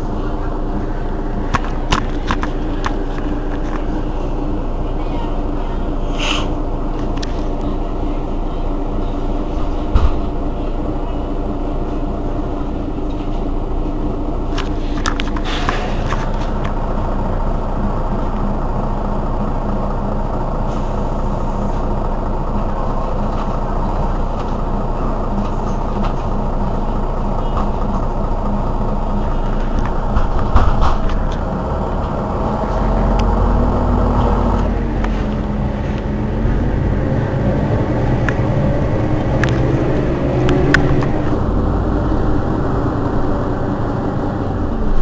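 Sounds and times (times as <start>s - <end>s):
bus engine idling: 0.0s - 45.0s
brief air hiss: 6.1s - 6.6s.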